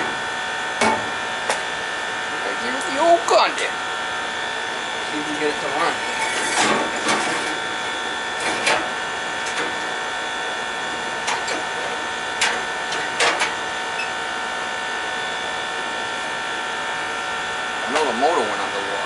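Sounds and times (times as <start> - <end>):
machine hum: 0.0 - 19.0.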